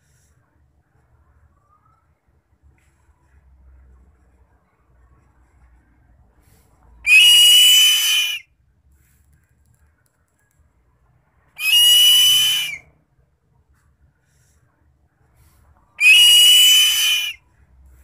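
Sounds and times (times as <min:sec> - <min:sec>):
bird of prey screaming: 0:07.1 - 0:08.4, 0:11.6 - 0:12.8, 0:16.0 - 0:17.4.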